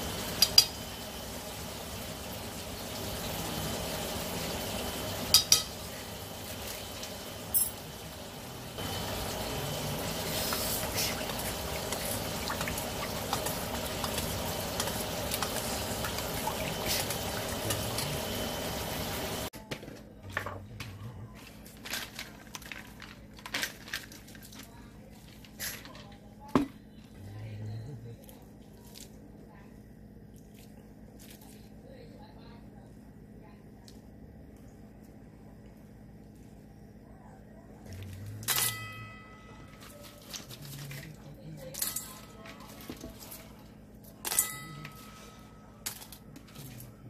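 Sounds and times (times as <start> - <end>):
spoon clinking against steel bowl: 5.3 - 5.7
dried mushrooms crackling and rattling: 21.5 - 24.7.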